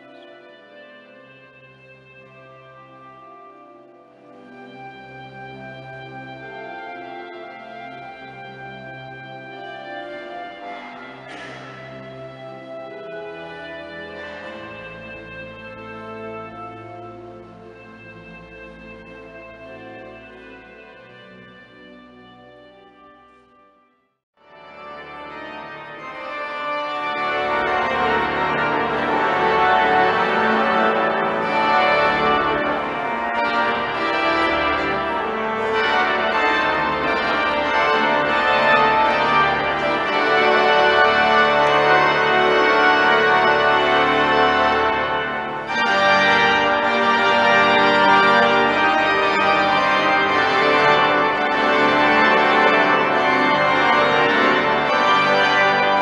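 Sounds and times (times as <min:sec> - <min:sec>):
pipe organ chords: 0:00.0 - 0:23.7, 0:24.4 - 0:56.0.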